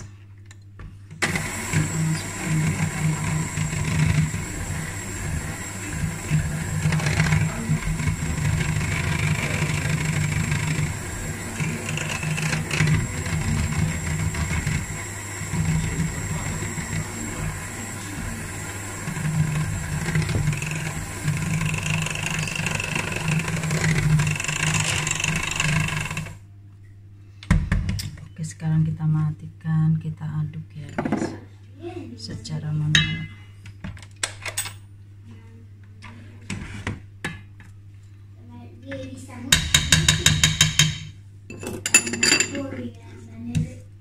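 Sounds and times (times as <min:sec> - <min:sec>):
electric hand mixer running: 0:01.2 - 0:26.4.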